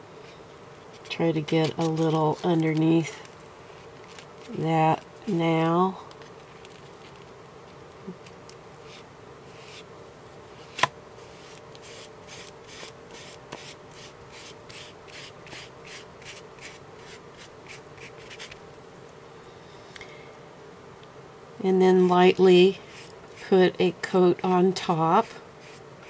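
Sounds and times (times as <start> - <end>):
sponge rubbing on paper: 22.8 - 23.6, 25.2 - 25.8.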